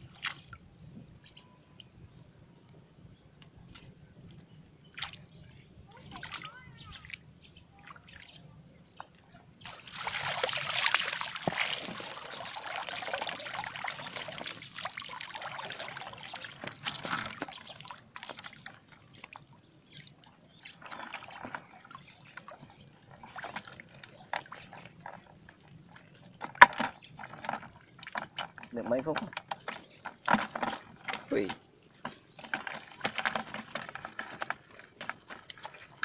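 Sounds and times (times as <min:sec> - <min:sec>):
water dripping and splashing: 0:00.0 - 0:00.9, 0:04.9 - 0:07.2, 0:09.6 - 0:36.0
water draining from fish trap: 0:09.6 - 0:19.5.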